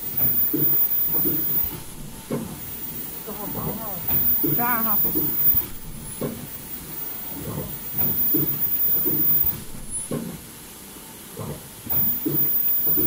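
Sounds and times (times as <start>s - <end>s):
machine clunks: 11.4s - 13.0s.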